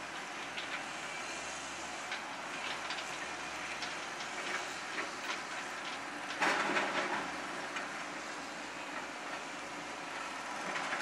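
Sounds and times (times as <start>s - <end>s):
diesel engine running: 0.0s - 11.0s
rattling and clanking machine: 2.1s - 7.9s.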